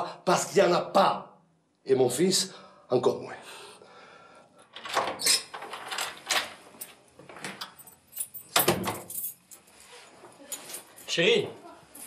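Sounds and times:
keys jangling in a lock: 4.7s - 9.7s, 10.5s - 11.2s.

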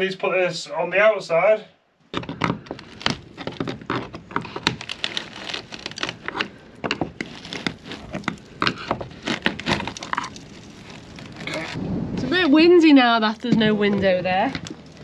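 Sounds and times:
wood cracking and clicking: 2.1s - 11.8s, 13.3s - 15.0s.

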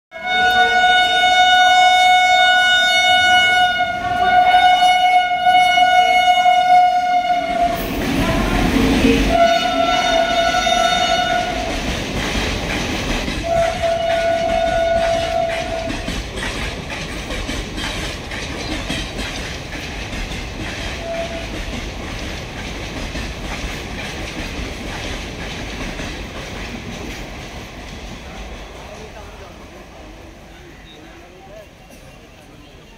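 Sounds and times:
locomotive horn blast: 0.1s - 11.7s, 13.4s - 16.1s, 21.0s - 21.6s
train passing at speed: 0.2s - 32.9s.

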